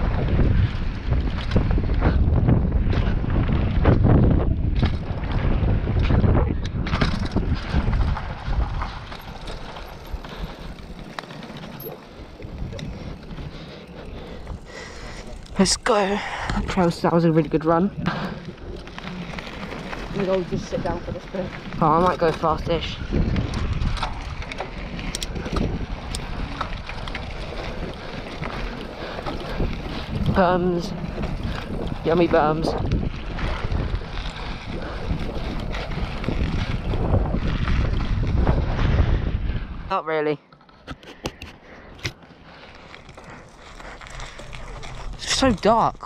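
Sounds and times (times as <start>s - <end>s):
bike clicks and rattles: 0.0s - 39.6s, 40.5s - 46.0s
bike tyres rolling on dirt: 0.0s - 46.0s
wind: 0.0s - 46.0s.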